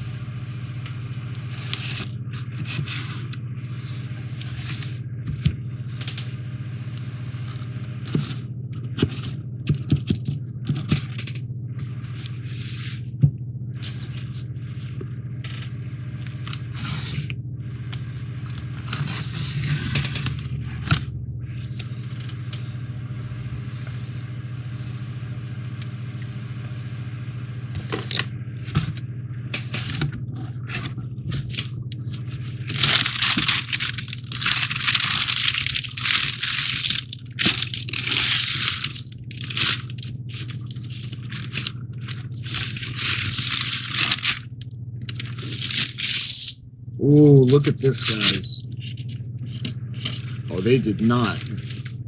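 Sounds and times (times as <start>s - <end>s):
steady low hum: 0.0s - 52.0s
paper packing crinkling: 1.3s - 3.4s, 4.0s - 6.3s, 15.5s - 17.2s, 18.4s - 22.4s, 29.6s - 46.6s, 47.5s - 52.0s
cardboard clicks and scrapes: 32.5s - 44.4s.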